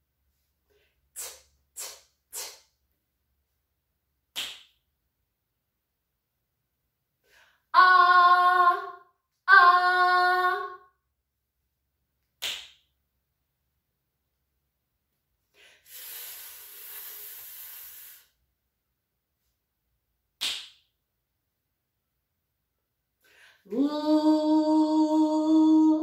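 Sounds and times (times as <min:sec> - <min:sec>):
woman hissing fff sound: 0:01.1 - 0:02.7, 0:15.6 - 0:18.4
finger snap: 0:01.2 - 0:02.7, 0:04.3 - 0:04.8, 0:12.2 - 0:12.9, 0:20.4 - 0:20.9.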